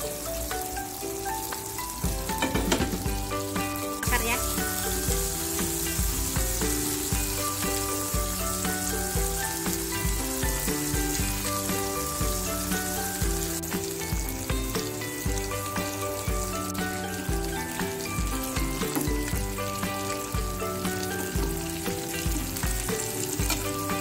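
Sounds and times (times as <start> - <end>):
background music with a beat: 0.0 - 24.0
ribs sizzling in hot oil: 0.0 - 24.0.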